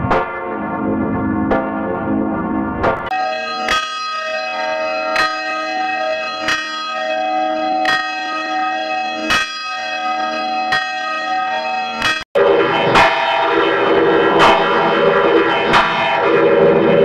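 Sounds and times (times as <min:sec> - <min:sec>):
church bell ringing: 0:03.1 - 0:17.0.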